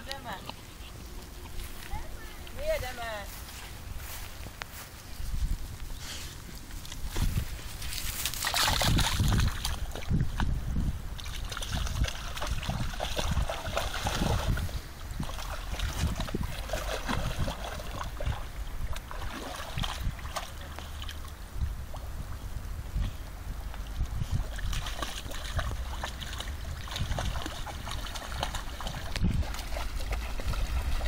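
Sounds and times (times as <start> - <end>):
dog splashing through water: 7.8 - 10.6, 11.2 - 22.0, 23.8 - 31.0.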